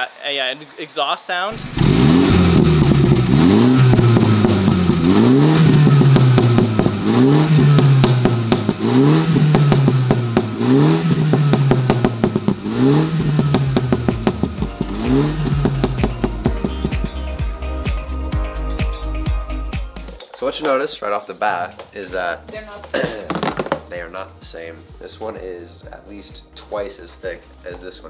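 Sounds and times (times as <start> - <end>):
car engine revving: 1.5 - 17.8.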